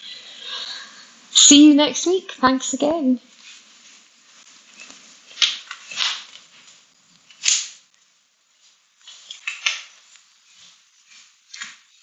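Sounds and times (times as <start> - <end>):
clothing rustling: 3.3 - 7.9, 8.5 - 12.0.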